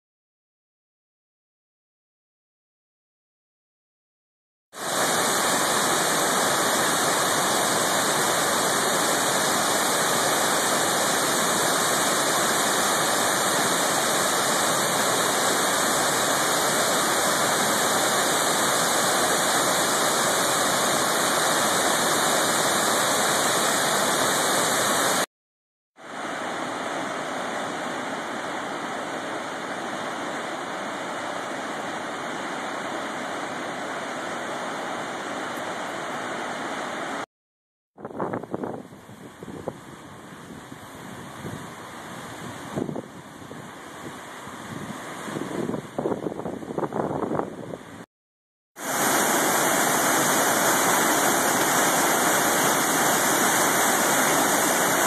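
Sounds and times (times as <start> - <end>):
distant waterfall rush: 4.8 - 25.3, 26.0 - 37.3, 39.1 - 47.4, 48.8 - 55.0
waterfall rushing: 4.8 - 25.3, 26.0 - 37.2, 48.8 - 55.0.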